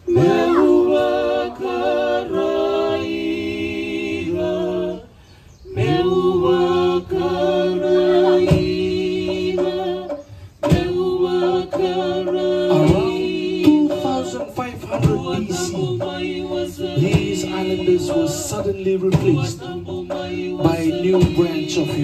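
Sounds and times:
voices chanting long notes: 0.0 - 22.0.

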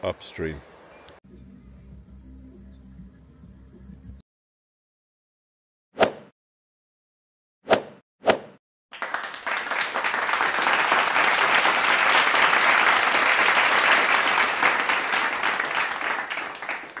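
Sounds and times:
crowd applauding: 8.9 - 17.0.

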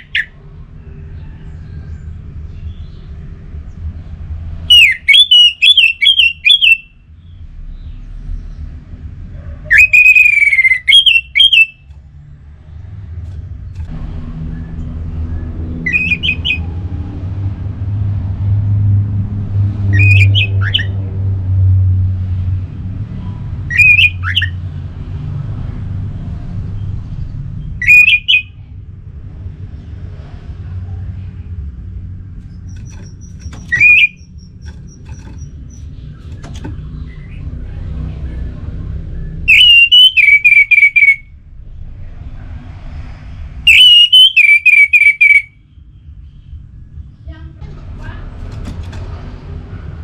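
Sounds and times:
thrush singing whistled phrases: 4.7 - 7.0, 9.7 - 11.9, 33.7 - 34.5, 39.4 - 41.2, 43.6 - 45.6
low rumble: 11.8 - 23.7, 41.2 - 43.7, 45.6 - 50.0.

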